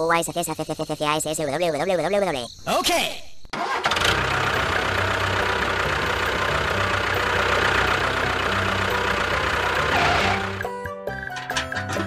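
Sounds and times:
motor starting and humming: 3.6 - 12.0.

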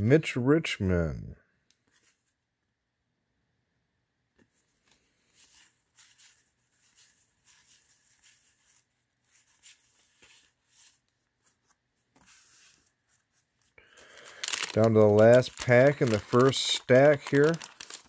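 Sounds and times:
cards rustling and sliding: 1.8 - 2.4, 4.4 - 18.0.

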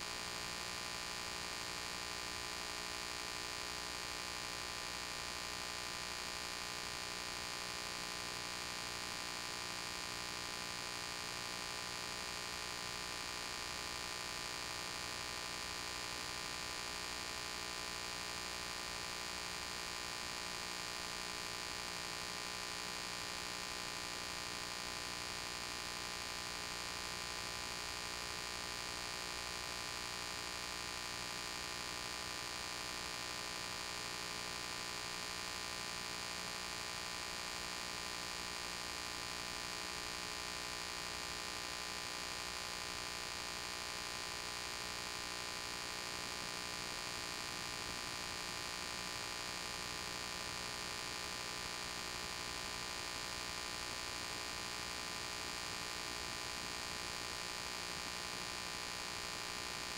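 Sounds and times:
electrical hum with hiss: 0.0 - 59.9.

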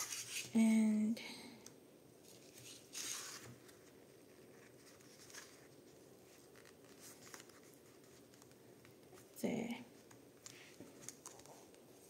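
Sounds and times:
paper rustling: 0.0 - 0.5, 2.2 - 9.3, 10.0 - 12.0.

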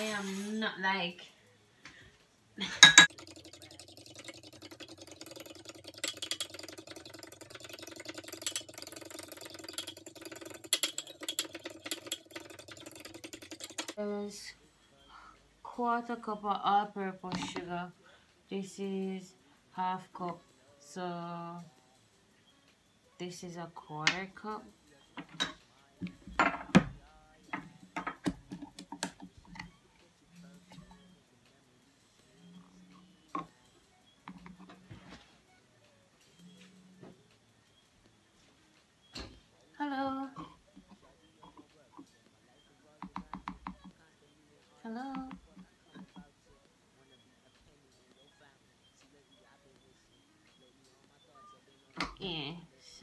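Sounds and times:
spoon whisking batter in a dish: 3.0 - 14.0.

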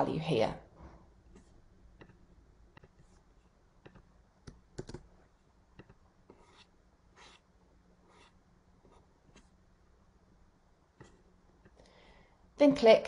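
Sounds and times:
mouse and keyboard clicks: 3.8 - 5.1
soft rubbing sounds: 6.2 - 9.6.

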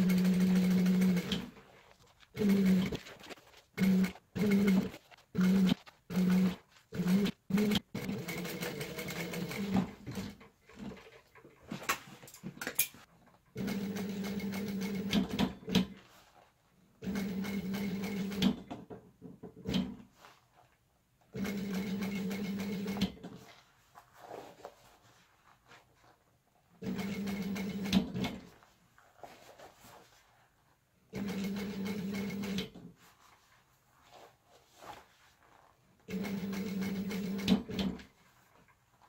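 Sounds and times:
sewing machine stitching: 0.0 - 11.4, 13.5 - 16.0, 17.0 - 18.9, 21.3 - 23.5, 26.8 - 28.5, 31.1 - 32.9, 36.0 - 38.2.

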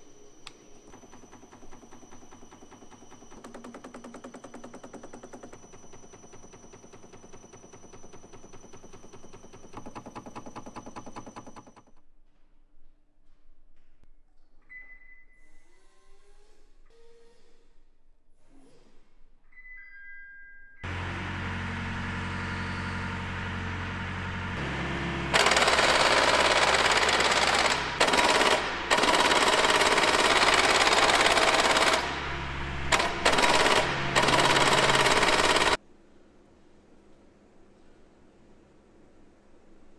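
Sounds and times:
motor low hum: 0.0 - 12.0, 20.8 - 35.8
loud harsh machine noise: 0.9 - 11.8, 20.9 - 35.8.

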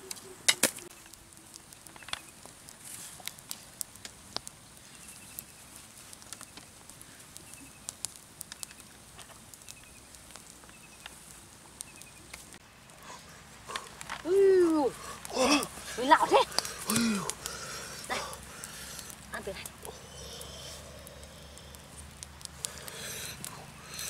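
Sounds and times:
wood fire crackling: 0.0 - 24.0
small bird chirping: 11.8 - 12.3.

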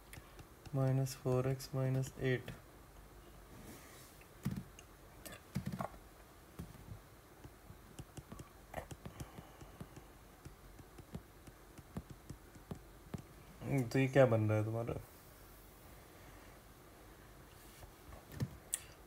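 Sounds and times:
stylus tapping on tablet screen: 7.4 - 13.3.

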